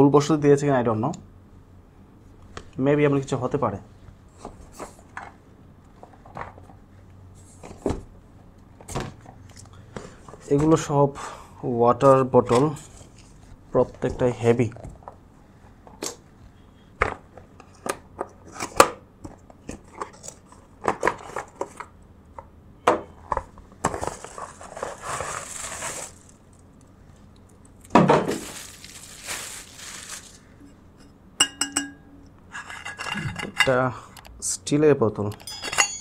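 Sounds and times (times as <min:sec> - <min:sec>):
steel bottle metallic ring: 0:31.0 - 0:32.3, 0:35.4 - 0:36.0.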